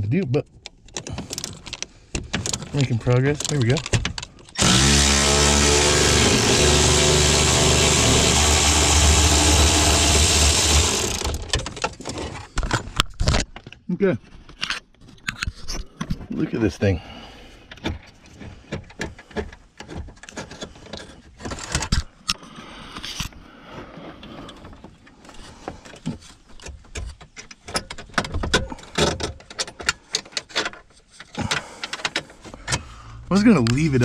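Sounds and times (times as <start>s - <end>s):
hand ratchet clicking: 4.5s - 11.6s.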